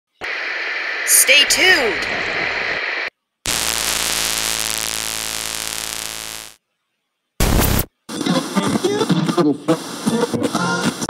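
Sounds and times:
television static hiss: 0.2s - 6.6s, 7.4s - 11.0s
buzzing static: 1.2s - 6.6s, 7.4s - 7.9s.

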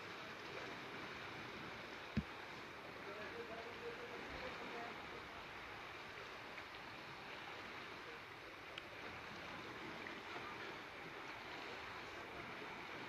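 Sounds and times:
steady outdoor hiss: 0.0s - 13.0s
faint ticks: 8.7s - 9.0s.

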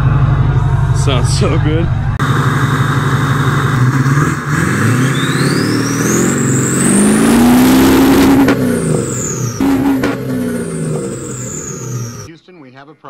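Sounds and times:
diesel engine revving: 0.0s - 12.3s
turbo whistle: 4.9s - 12.3s.

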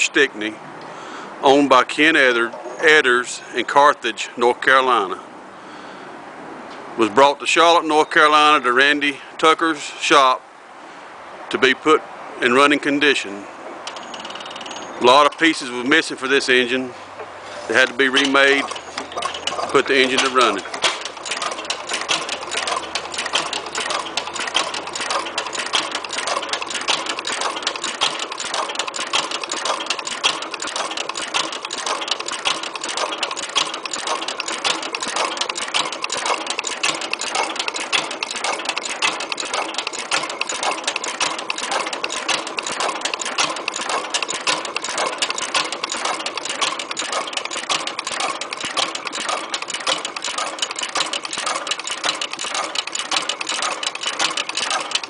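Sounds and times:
engine rapid mechanical clatter: 13.8s - 16.8s, 17.5s - 55.0s.

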